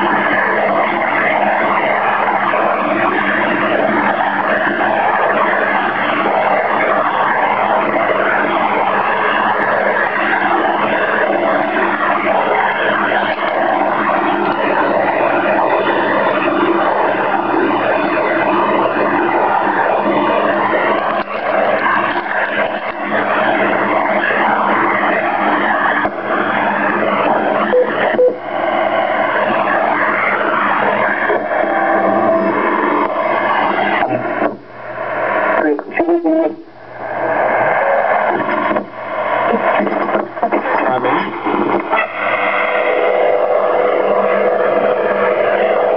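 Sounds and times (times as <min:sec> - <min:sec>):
radio interference noise: 0:00.0 - 0:45.9
short radio beeps: 0:27.7 - 0:28.4.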